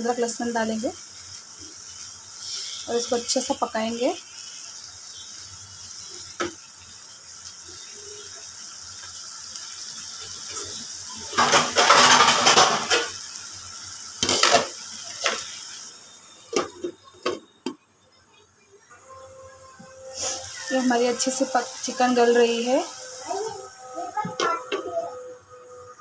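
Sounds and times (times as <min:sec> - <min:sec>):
chicken sizzling in oil: 0:00.0 - 0:17.4, 0:19.0 - 0:26.0
spatula scraping pan: 0:10.6 - 0:13.1, 0:20.0 - 0:23.6.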